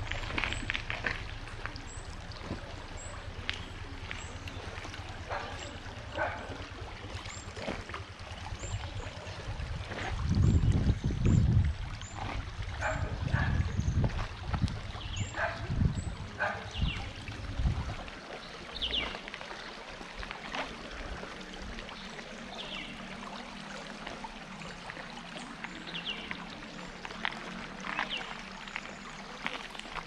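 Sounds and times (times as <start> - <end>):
low rumble: 0.0 - 18.1
stream water flowing: 0.0 - 30.0.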